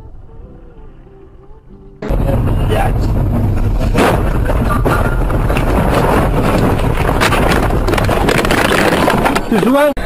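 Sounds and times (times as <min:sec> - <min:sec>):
car rumbling through snow: 0:02.0 - 0:09.3
sharp knocks and thuds: 0:03.0 - 0:09.5.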